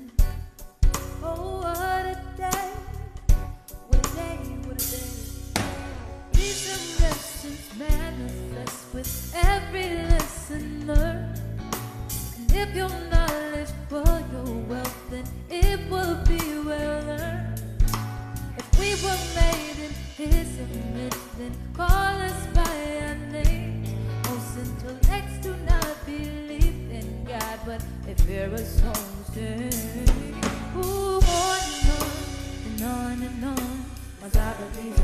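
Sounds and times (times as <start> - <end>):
drum kit snare and kick hits: 0.0 - 1.4, 2.4 - 27.6, 28.2 - 35.0
live band playing soul-pop: 0.0 - 35.0
person singing: 1.2 - 11.3, 18.6 - 35.0.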